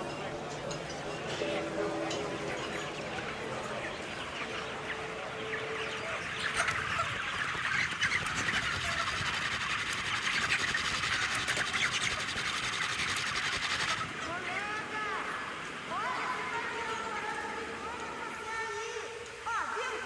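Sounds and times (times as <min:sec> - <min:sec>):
chickens peeping and clucking: 0:00.0 - 0:19.4.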